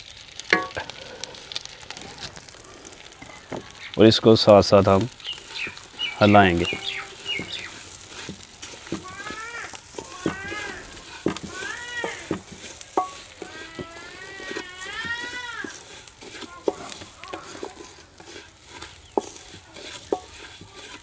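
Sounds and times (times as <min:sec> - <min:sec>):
seeds sizzling in butter: 0:00.0 - 0:21.0
spatula scraping and tapping pan: 0:00.4 - 0:02.3, 0:04.5 - 0:21.0
animal calling: 0:05.2 - 0:07.8.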